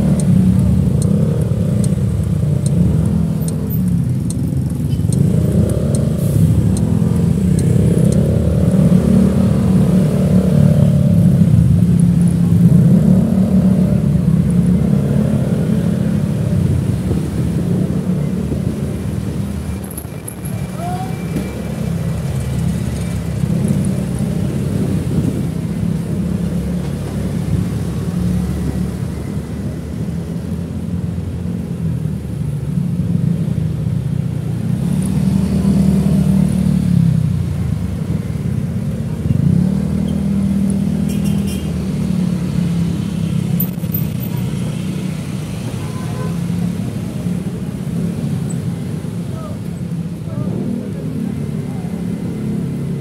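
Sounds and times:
motorcycle engine revving: 0:00.0 - 0:19.6
traffic noise: 0:00.0 - 0:53.0.

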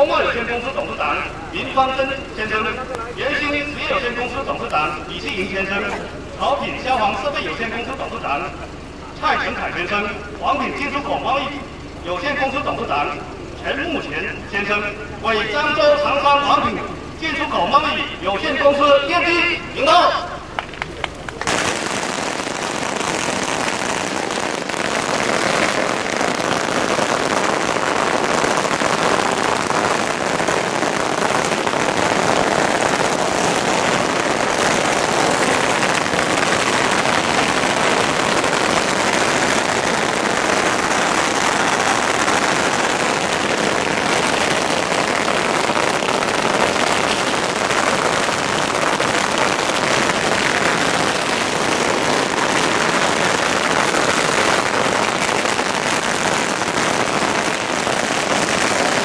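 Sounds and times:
firecrackers crackling: 0:00.0 - 0:59.0.

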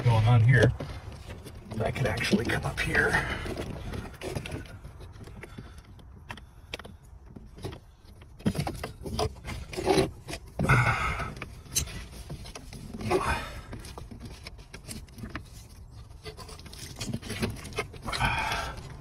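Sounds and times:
hands scraping wiring and plastic trim: 0:00.0 - 0:19.0
small clicks and knocks: 0:03.5 - 0:10.7.

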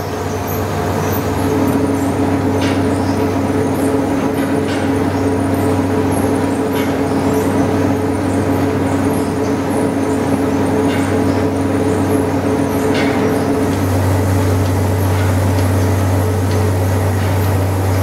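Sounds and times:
low machine hums: 0:00.0 - 0:18.0.

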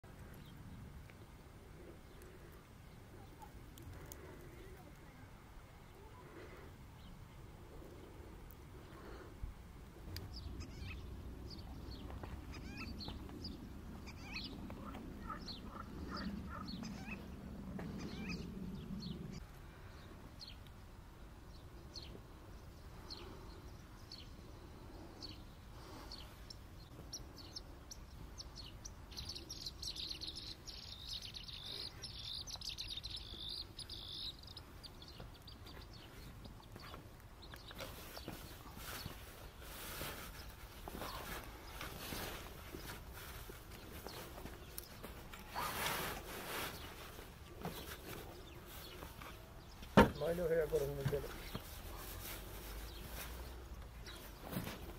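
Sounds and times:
small birds chirping: 0:00.0 - 0:54.9.

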